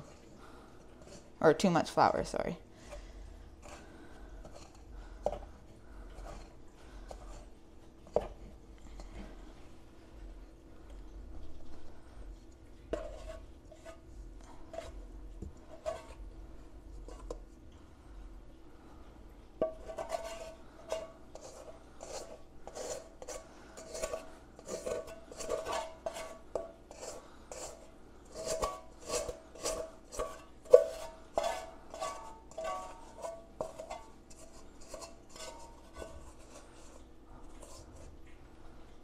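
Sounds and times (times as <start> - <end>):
spatula scraping metal bowl: 3.6 - 5.5, 6.2 - 8.4, 12.9 - 15.0, 15.7 - 16.2, 19.6 - 38.2.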